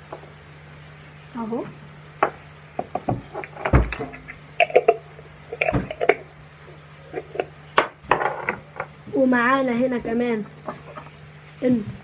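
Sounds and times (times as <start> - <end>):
objects knocking on counter: 2.2 - 4.1, 7.8 - 8.9
metal spoon clinking: 3.9 - 4.9.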